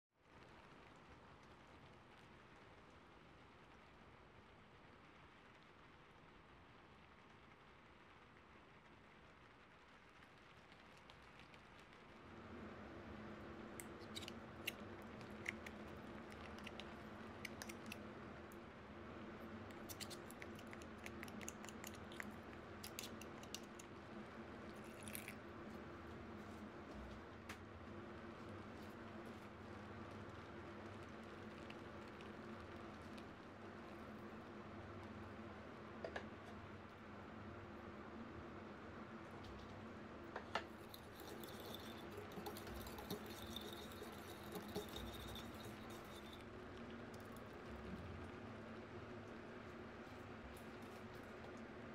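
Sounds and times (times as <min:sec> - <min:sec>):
low steady hum: 0:00.3 - 0:51.9
metal spoon scraping mustard: 0:13.8 - 0:18.0, 0:19.7 - 0:23.9, 0:40.7 - 0:46.4
whisk scraping ceramic bowl: 0:40.7 - 0:46.5.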